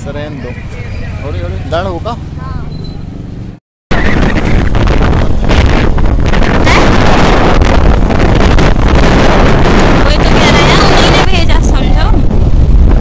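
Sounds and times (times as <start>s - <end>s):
wind buffeting microphone: 3.9s - 13.0s.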